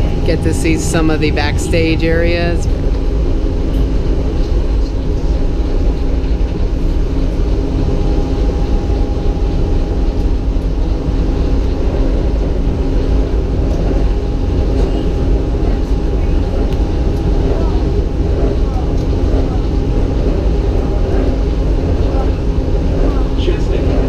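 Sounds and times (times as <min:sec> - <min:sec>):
monorail train rumble: 0:00.0 - 0:24.0.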